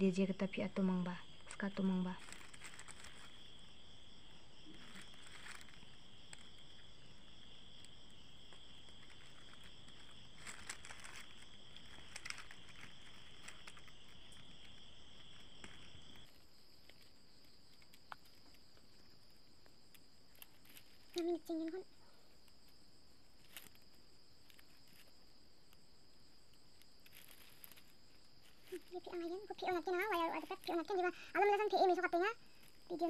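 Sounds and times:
crickets trilling: 0:00.0 - 0:33.0
plastic strips rustling: 0:01.4 - 0:03.7, 0:04.6 - 0:06.8, 0:08.5 - 0:16.3, 0:20.3 - 0:21.4, 0:27.0 - 0:31.0.

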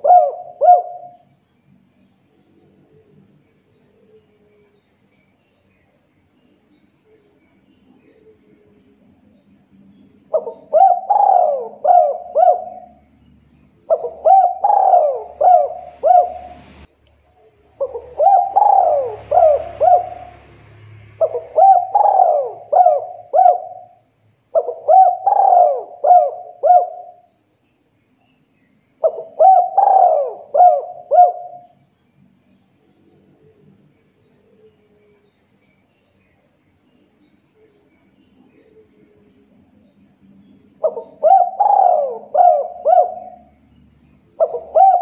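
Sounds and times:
dove cooing: 0:00.0 - 0:01.4, 0:10.3 - 0:13.1, 0:13.8 - 0:16.9, 0:17.7 - 0:27.3, 0:29.0 - 0:31.8, 0:40.7 - 0:45.0.

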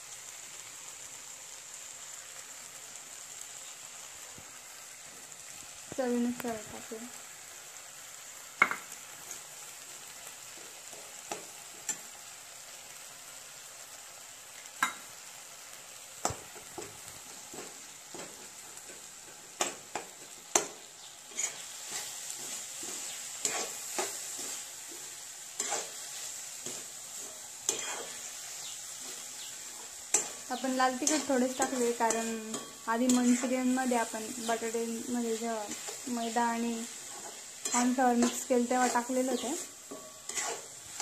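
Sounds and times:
vegetables sizzling in oil: 0:00.0 - 0:41.0
metal spoon scraping a wok: 0:09.2 - 0:09.6, 0:16.3 - 0:34.7, 0:35.6 - 0:41.0.

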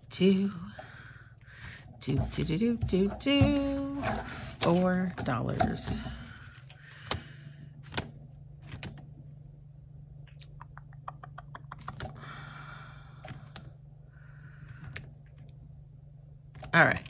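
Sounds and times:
steady low hum: 0:00.0 - 0:17.0
soft plastic rustle: 0:02.2 - 0:06.8
plastic sheets flipping clicks: 0:07.8 - 0:09.1.

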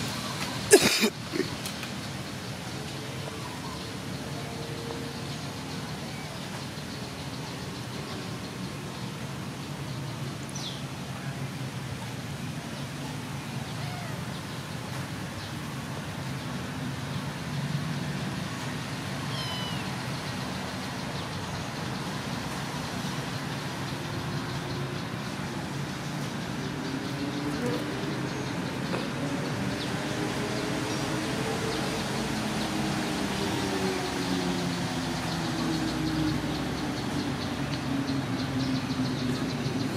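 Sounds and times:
kitten meowing faintly: 0:13.6 - 0:14.3, 0:19.3 - 0:20.0.

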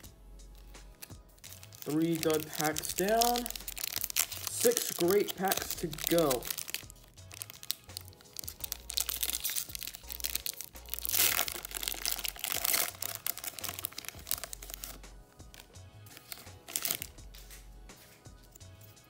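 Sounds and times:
foil wrapper tearing open: 0:01.0 - 0:15.0, 0:15.6 - 0:17.2
foil wrapper crinkling: 0:01.0 - 0:17.2.

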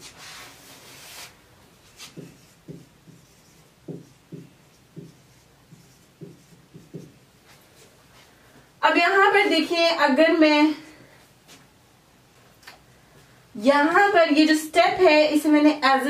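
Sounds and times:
marker writing on whiteboard: 0:01.8 - 0:07.9.

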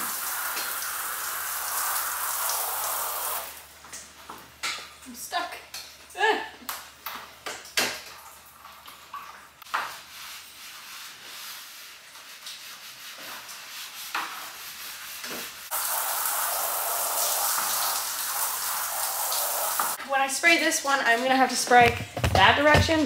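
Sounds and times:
hose spray hissing on metal: 0:00.0 - 0:03.6, 0:15.2 - 0:20.0.

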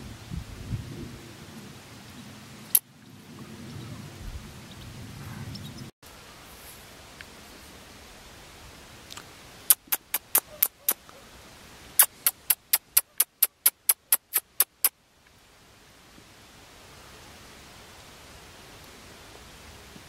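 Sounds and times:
faint steady hiss: 0:06.0 - 0:20.0
sharp evenly spaced clicks: 0:09.7 - 0:11.0, 0:12.0 - 0:14.9.

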